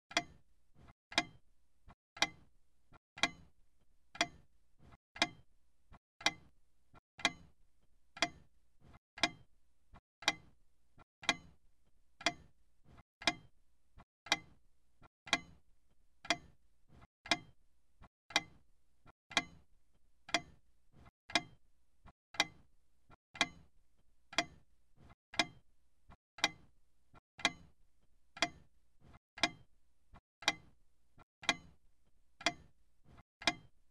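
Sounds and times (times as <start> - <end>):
clock ticking: 0.1 - 0.4, 1.1 - 1.4, 2.2 - 2.5, 3.2 - 3.5, 4.2 - 4.5, 5.2 - 5.5, 6.2 - 6.5, 7.2 - 7.6, 8.2 - 8.6, 9.2 - 9.5, 10.2 - 10.6, 11.2 - 11.6, 12.2 - 12.6, 13.2 - 13.5, 14.3 - 14.6, 15.3 - 15.6, 16.2 - 16.6, 17.2 - 17.6, 18.3 - 18.6, 19.3 - 19.7, 20.3 - 20.6, 21.3 - 21.6, 22.4 - 22.7, 23.4 - 23.7, 24.3 - 24.7, 25.3 - 25.6, 26.4 - 26.7, 27.4 - 27.8, 28.4 - 28.7, 29.4 - 29.7, 30.4 - 30.8, 31.4 - 31.8, 32.4 - 32.8, 33.4 - 33.8.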